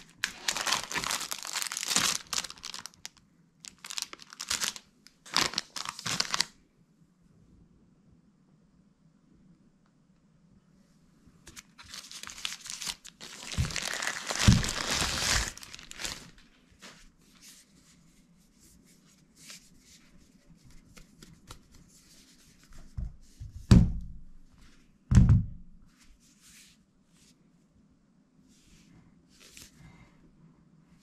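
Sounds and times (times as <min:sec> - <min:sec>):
plastic bag crinkling: 0:00.0 - 0:06.6, 0:11.5 - 0:17.0.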